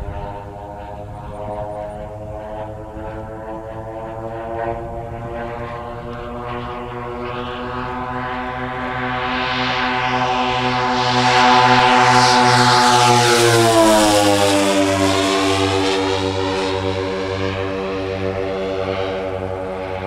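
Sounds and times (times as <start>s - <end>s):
model airplane engines droning: 0.0s - 20.0s.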